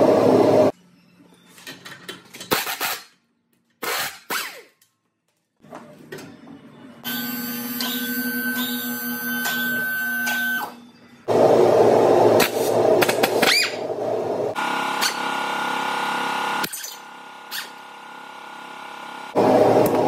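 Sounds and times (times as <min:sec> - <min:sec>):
pneumatic air hammer: 0:02.4 - 0:03.2, 0:03.8 - 0:04.8, 0:07.1 - 0:10.7, 0:14.9 - 0:15.3, 0:16.6 - 0:17.8.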